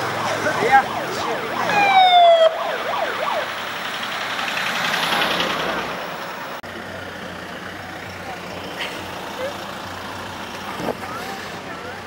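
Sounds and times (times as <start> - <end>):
police siren wailing: 0.0 - 4.4
vehicles driving past: 0.0 - 12.0.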